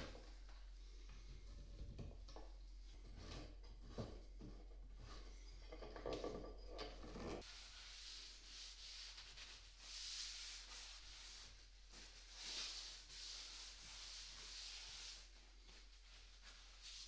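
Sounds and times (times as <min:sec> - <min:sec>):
cloth rag wiping wood: 0:07.4 - 0:17.0.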